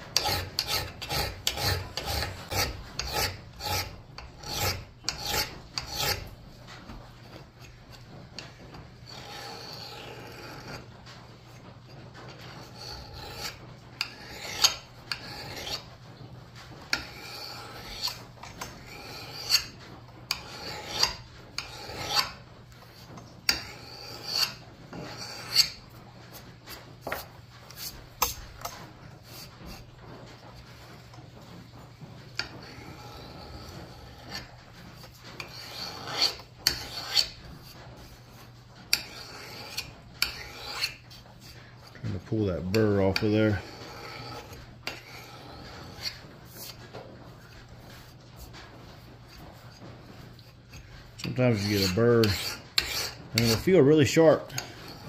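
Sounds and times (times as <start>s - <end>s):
file scraping steel axe: 0.0s - 55.0s.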